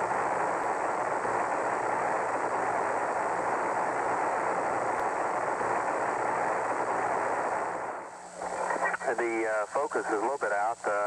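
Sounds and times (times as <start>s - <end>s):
faint steady hum: 0.0s - 11.0s
radio hiss: 0.0s - 11.0s.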